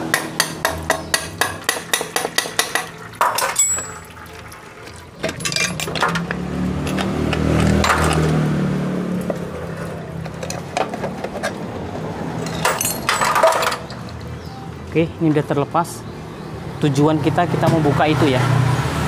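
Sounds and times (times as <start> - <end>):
metal knocks and clinks: 0.4 - 4.1, 5.2 - 8.2, 12.4 - 14.4.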